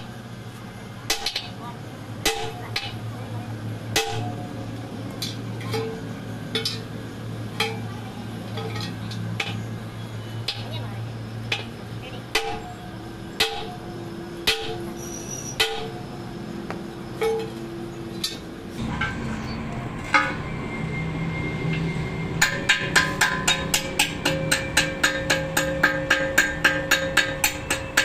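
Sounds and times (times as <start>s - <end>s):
hammer striking metal: 1.1s - 1.6s, 2.2s - 3.0s, 4.0s - 4.5s, 11.5s - 12.7s, 13.4s - 16.1s, 18.2s - 20.6s, 21.6s - 28.0s.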